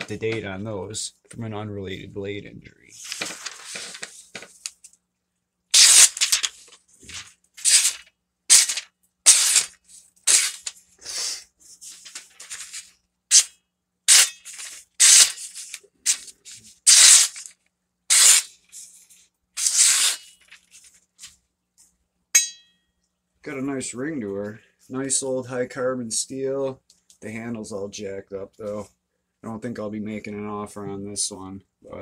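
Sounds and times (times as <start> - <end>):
machete slicing newspaper: 5.8 - 6.6, 7.6 - 10.7, 14.1 - 16.2, 16.9 - 17.5, 18.1 - 18.6, 19.6 - 20.3.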